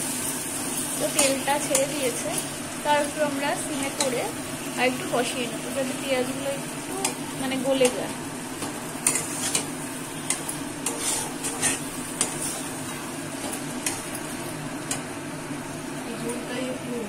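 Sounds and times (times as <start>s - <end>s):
masala sizzling in oil: 0.0s - 17.0s
metal spatula scraping a pan: 9.0s - 12.8s.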